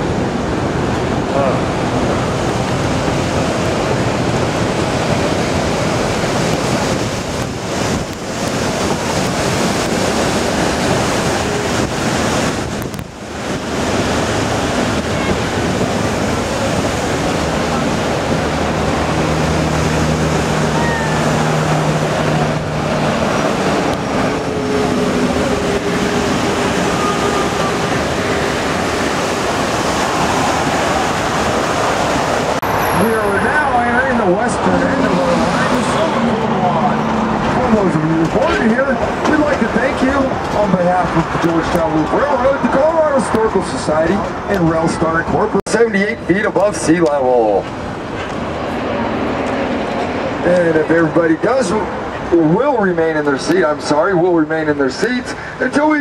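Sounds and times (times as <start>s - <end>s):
wind across microphone: 0.0s - 33.7s
train wheels on track: 21.6s - 33.5s, 34.8s - 42.1s, 46.5s - 50.9s.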